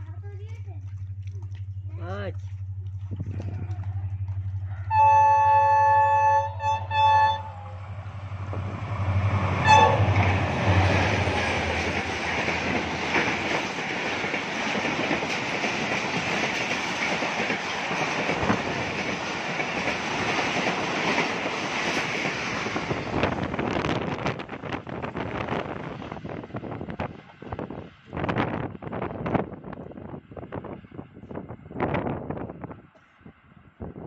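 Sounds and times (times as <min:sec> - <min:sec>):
locomotive engine hum: 0:00.0 - 0:31.8
train horn blasts: 0:04.8 - 0:08.4, 0:09.2 - 0:11.3
train wheels clattering on rails: 0:08.3 - 0:28.5.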